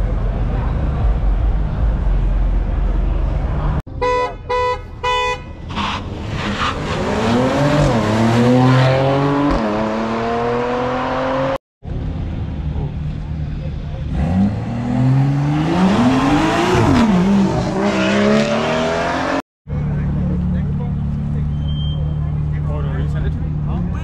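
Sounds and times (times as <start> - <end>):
low rumble: 0.0 - 3.8
car horn honks: 3.9 - 5.7.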